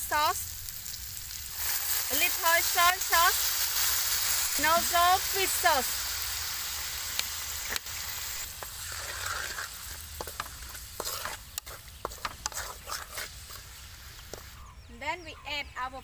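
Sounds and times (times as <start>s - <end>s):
food sizzling in a wok: 0.0s - 14.7s
wooden spatula scraping a wok: 1.5s - 14.6s.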